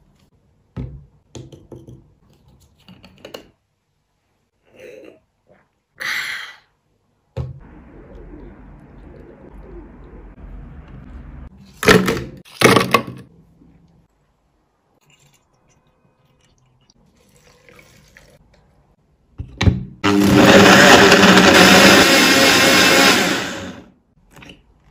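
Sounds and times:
blender running loud: 20.0 - 23.9.

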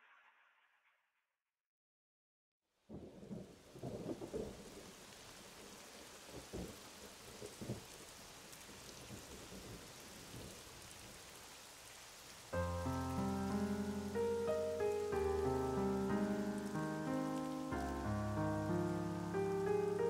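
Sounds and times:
rain: 2.7 - 20.0
thunder rumbling: 2.9 - 8.0.

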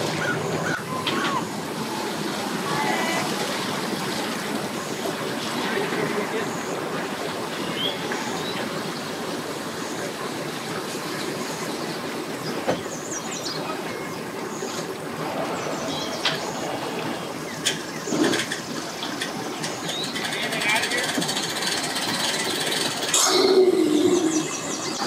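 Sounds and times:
busy boat ramp background noise: 0.0 - 25.0.

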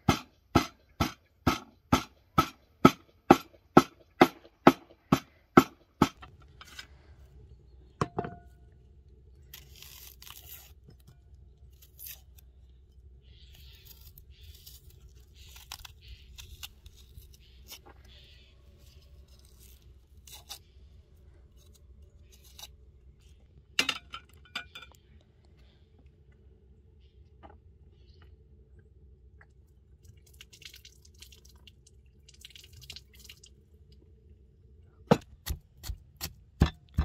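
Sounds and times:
onion skin rustling and tearing: 9.3 - 23.5.

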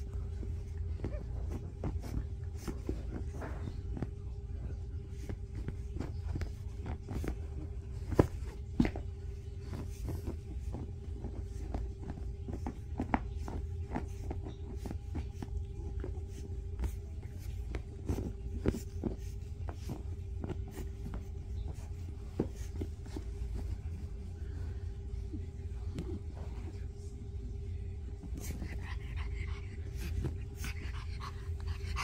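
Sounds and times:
background hum: 0.0 - 32.0
dog scratching at bed: 5.0 - 24.4, 28.2 - 32.0.

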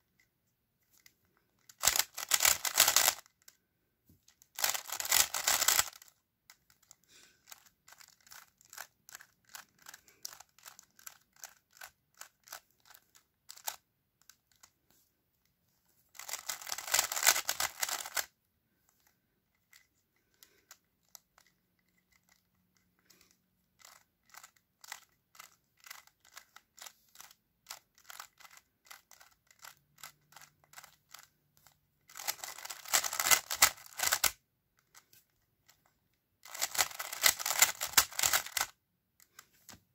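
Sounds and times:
speed cube clicking turns: 1.0 - 3.6, 4.3 - 14.8, 16.2 - 18.3, 19.0 - 39.5.

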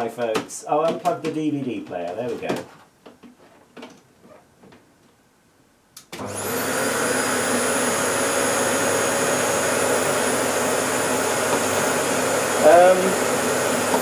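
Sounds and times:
vacuum cleaner motor running: 6.2 - 14.0.

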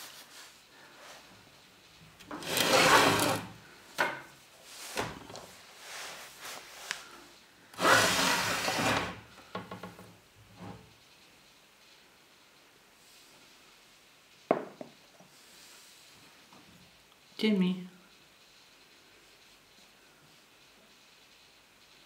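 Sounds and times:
glass doors sliding on track: 2.2 - 3.6, 7.8 - 10.0
short knocks and scrapes: 2.3 - 5.6.

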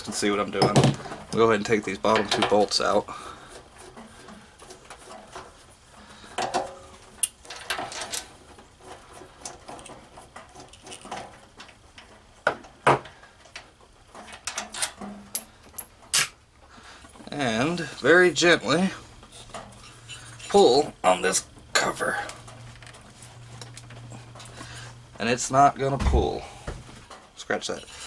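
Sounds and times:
bolts clinking: 6.4 - 16.4.

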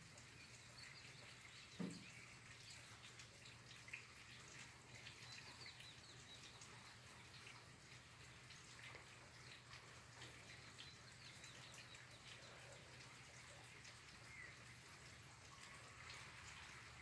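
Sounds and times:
faint rain dripping: 0.0 - 17.0
soft knock: 1.8 - 2.0.

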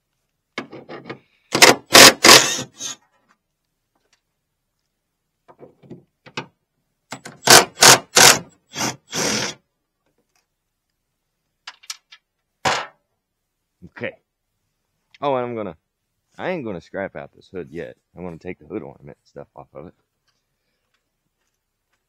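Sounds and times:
hand ratchet turning bolts: 1.6 - 3.0.

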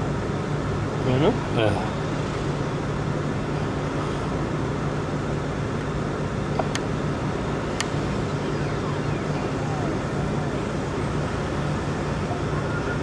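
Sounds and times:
traffic noise: 0.0 - 13.0
sharp clicks: 7.8 - 8.0.

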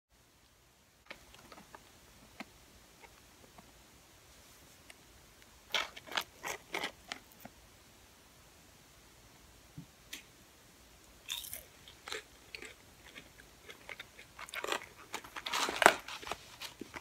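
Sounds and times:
crackles and rustles of paper carton: 15.1 - 17.0.

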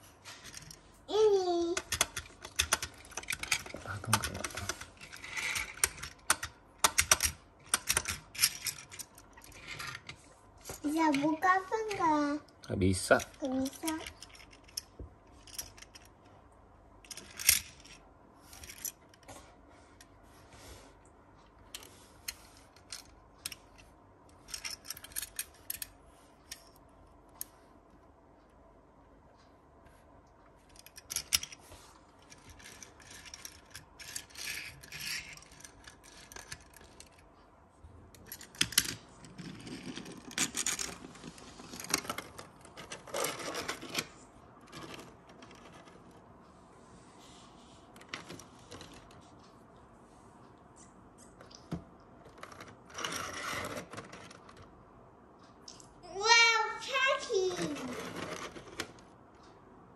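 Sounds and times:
toy car clicks and scrapes: 1.4 - 10.2, 13.2 - 16.1, 17.0 - 18.0, 32.2 - 37.2, 38.2 - 44.1, 52.3 - 54.7, 56.9 - 59.0.

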